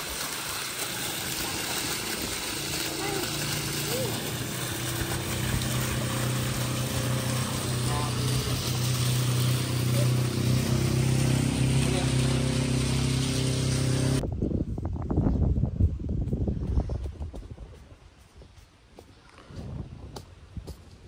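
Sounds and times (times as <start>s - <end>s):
motor drone: 0.0s - 14.2s.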